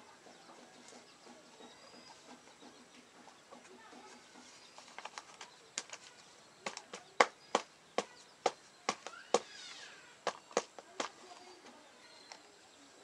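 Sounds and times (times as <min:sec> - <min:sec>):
hands pressing soil into plastic: 0:03.9 - 0:09.5, 0:10.2 - 0:11.7.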